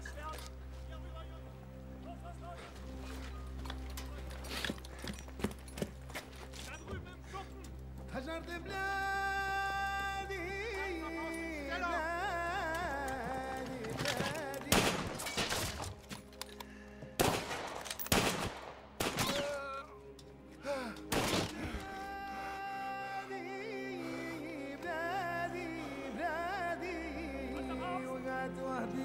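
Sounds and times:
film score with sung-like melody: 0.0 - 17.8, 18.5 - 29.0
gunfire bursts: 14.7 - 15.7, 17.2 - 19.5, 21.1 - 21.6.

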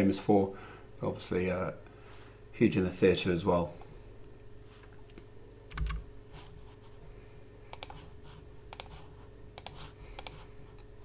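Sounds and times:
faint steady hum: 0.0 - 11.0
computer keys clicking: 5.7 - 6.0, 7.7 - 8.0, 8.7 - 10.9.

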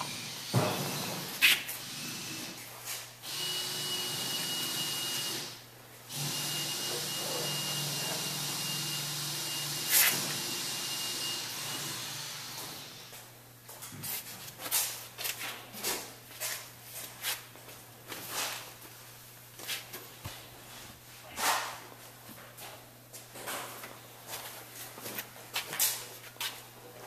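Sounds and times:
motor hum with high whine: 0.0 - 21.0.

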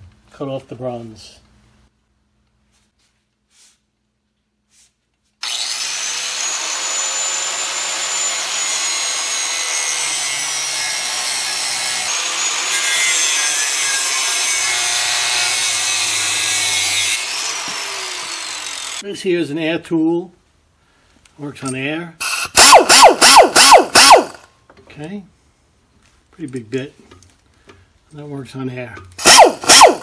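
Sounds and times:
angle grinder whine: 5.4 - 19.0, 22.2 - 24.5
grinder cutting metal: 5.4 - 19.0, 29.2 - 30.0.

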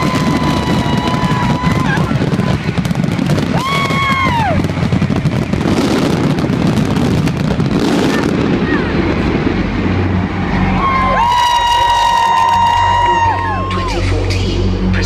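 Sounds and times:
high whoop: 0.0 - 2.6, 3.5 - 4.7, 10.3 - 14.0
fireworks booming and crackling: 0.0 - 10.6.

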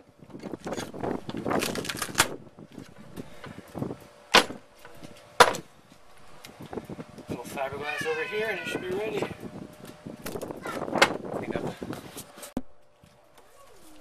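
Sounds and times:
sharp knocks: 4.3 - 4.6.

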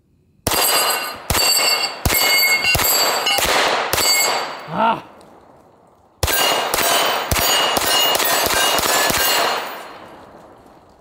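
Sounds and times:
pistol shots: 0.4 - 4.7, 6.2 - 10.5
metallic clang of steel plates: 0.7 - 4.5.

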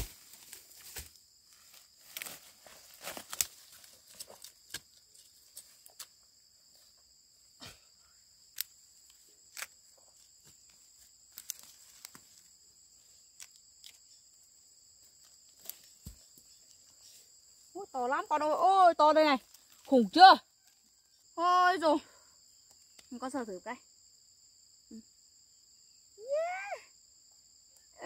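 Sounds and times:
plants rustling and knocking: 0.0 - 6.1, 15.1 - 17.1
insects chirring: 0.0 - 28.0.

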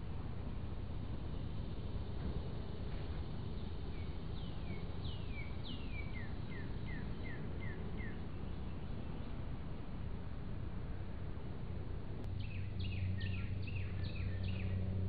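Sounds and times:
low steady hiss: 0.0 - 14.8
songbird singing: 1.2 - 9.6, 12.2 - 15.0.

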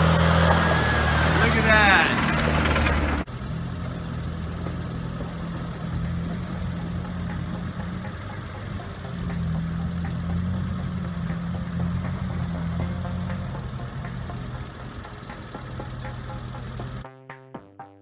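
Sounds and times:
truck engine under load: 0.0 - 17.1.

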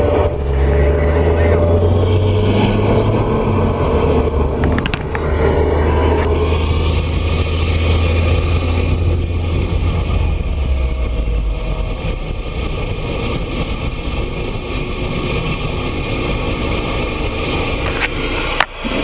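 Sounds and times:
road noise: 0.0 - 19.0
vehicle engine drone: 0.0 - 19.0.

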